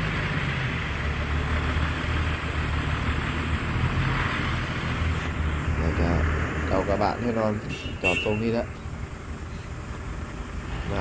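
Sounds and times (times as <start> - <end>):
diesel machinery engines droning: 0.0 - 11.0.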